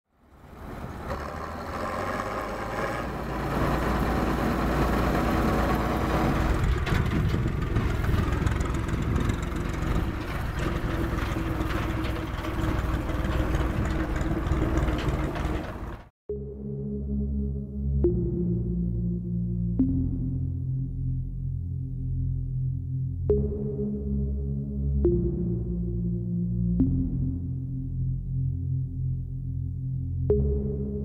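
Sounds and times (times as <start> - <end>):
diesel engines running: 0.2 - 16.1
music: 16.3 - 31.0.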